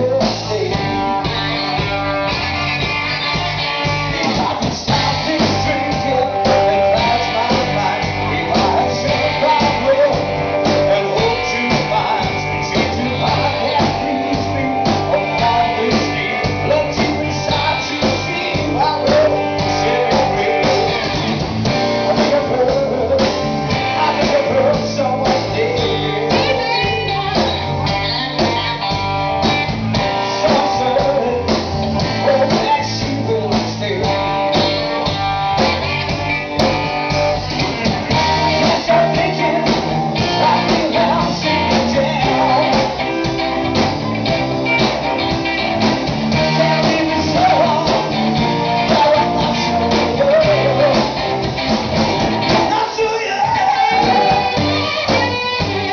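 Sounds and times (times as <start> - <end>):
man singing into a microphone: 0.0 - 2.3, 4.1 - 28.6, 30.0 - 34.3, 38.1 - 43.3, 46.3 - 51.4, 52.5 - 55.3
drums with a steady beat: 0.0 - 55.9
electric guitars: 0.0 - 55.9.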